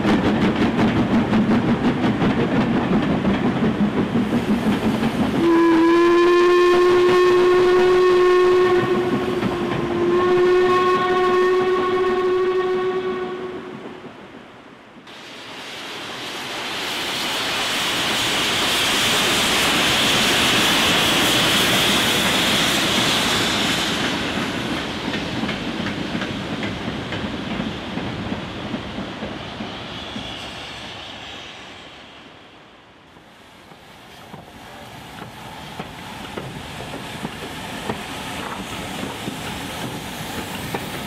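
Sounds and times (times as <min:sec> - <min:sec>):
train wheel and rail noise: 0:00.0 - 0:41.0
steam locomotive whistle blasts: 0:05.4 - 0:13.8.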